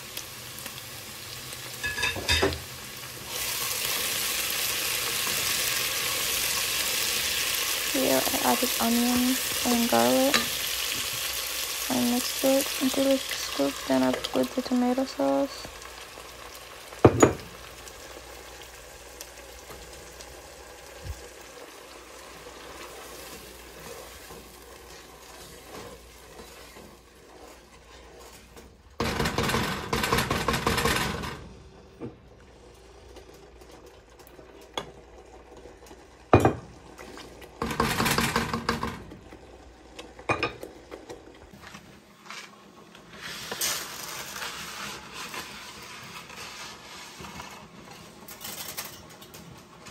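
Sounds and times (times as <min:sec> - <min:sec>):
sauce sizzling in a pot: 0:00.0 - 0:29.0, 0:42.4 - 0:48.3
wooden spatula scraping a pot: 0:22.5 - 0:28.8, 0:42.2 - 0:48.2.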